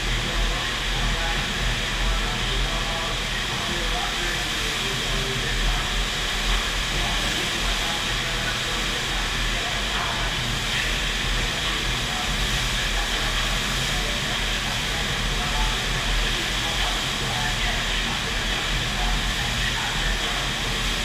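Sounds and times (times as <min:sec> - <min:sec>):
rushing water roar: 0:00.0 - 0:21.0.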